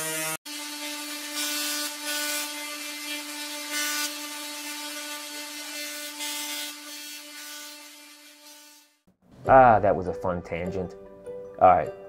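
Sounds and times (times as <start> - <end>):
tesla coil buzz: 0.0 - 9.0.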